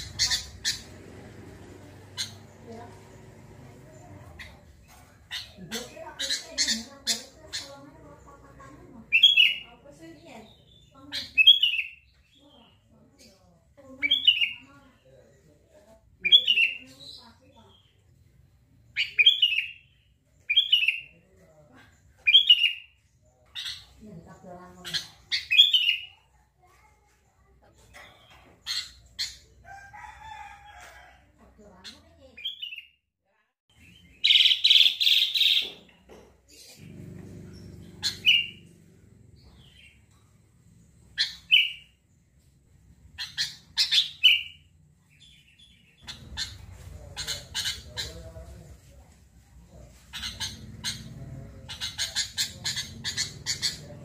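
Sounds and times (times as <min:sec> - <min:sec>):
bird chirping: 0:00.0 - 0:15.6, 0:16.2 - 0:26.4, 0:33.7 - 0:48.6, 0:49.6 - 0:54.0
harsh bird call: 0:37.5 - 0:38.7.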